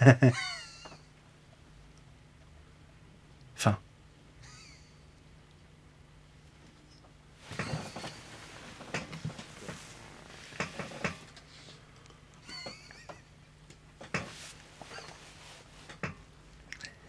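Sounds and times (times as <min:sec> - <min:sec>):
man chuckling: 0:00.0 - 0:01.0, 0:04.4 - 0:05.1, 0:07.5 - 0:08.3, 0:12.4 - 0:13.4, 0:14.9 - 0:15.2.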